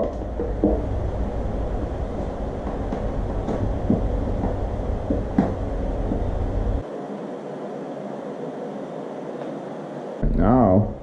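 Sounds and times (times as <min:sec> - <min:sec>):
low steady rumble: 0:00.0 - 0:06.8.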